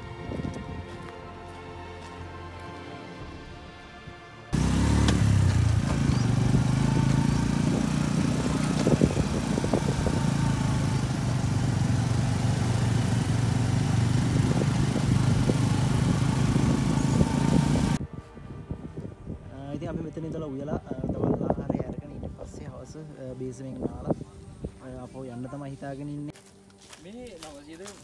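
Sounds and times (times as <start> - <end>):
motorcycle engine running: 4.6 - 18.0.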